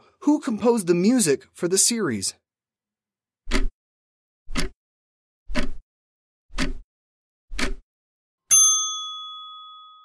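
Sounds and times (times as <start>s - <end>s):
timer ticks: 4.5s - 4.8s, 5.5s - 5.8s, 6.5s - 6.8s, 7.5s - 7.8s
bell ding: 8.5s - 10.0s.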